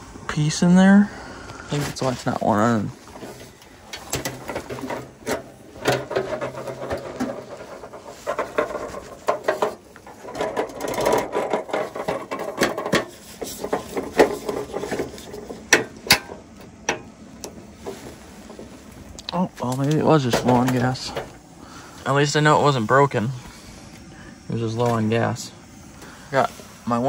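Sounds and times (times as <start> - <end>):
plastic case knocking and rattling: 4.1 - 13.1.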